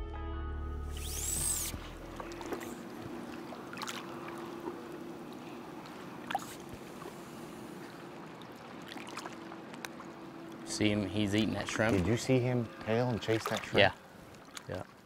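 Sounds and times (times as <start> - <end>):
faint steady hum: 1.0 - 15.0
water lapping and trickling: 1.5 - 15.0
soft water drips: 2.1 - 15.0.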